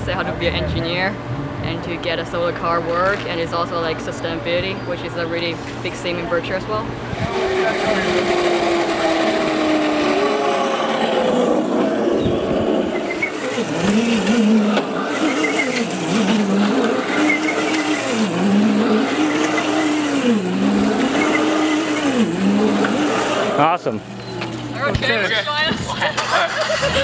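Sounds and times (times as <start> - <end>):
wheels hissing on pavement: 7.0 - 23.7
electric motor whining: 7.0 - 25.2.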